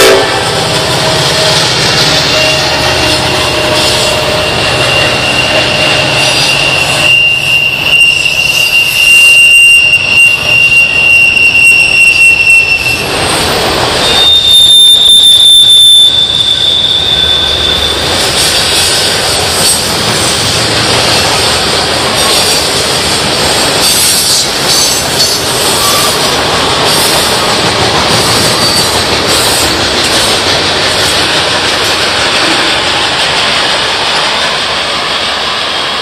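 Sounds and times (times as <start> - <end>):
train wheels rumbling on rail: 0.0 - 36.0
wheel flanges squealing: 0.9 - 20.4, 23.8 - 30.3.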